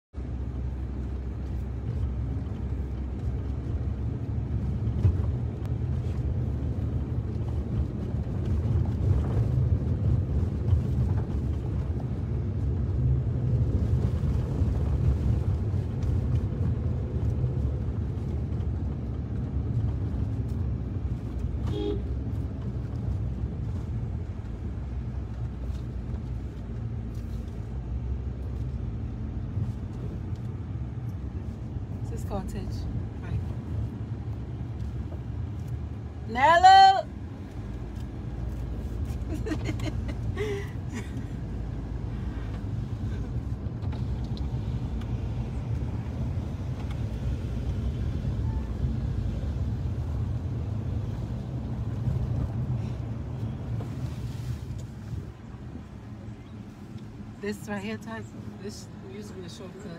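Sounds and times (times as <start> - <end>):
car engine and road rumble: 0.0 - 59.9
car horn toot: 21.6 - 22.2.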